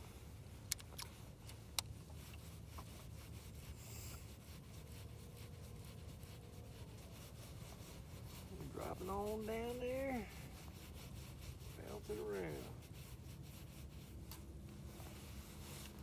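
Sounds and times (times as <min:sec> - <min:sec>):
faint outdoor ambience: 0:00.0 - 0:16.0
sharp clicks: 0:00.7 - 0:01.9
rubbing against microphone: 0:01.1 - 0:16.0.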